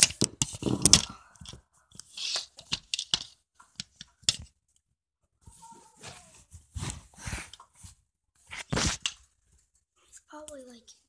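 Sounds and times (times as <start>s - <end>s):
phone handling rustling and scraping: 8.5s - 9.3s.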